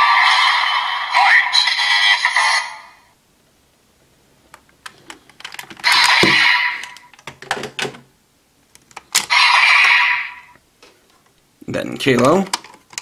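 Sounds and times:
plastic toy belt clicks and rattles: 0:12.2 - 0:13.0.

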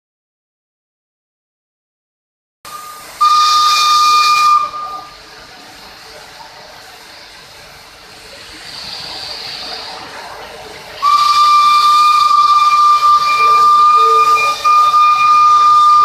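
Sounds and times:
steam whistle: 0:02.7 - 0:05.2, 0:11.0 - 0:16.0
steam hissing from locomotive: 0:02.7 - 0:16.0.

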